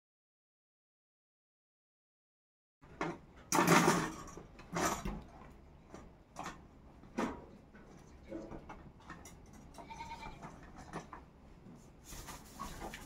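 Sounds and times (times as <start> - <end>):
irregular knocks and clattering: 2.8 - 11.8.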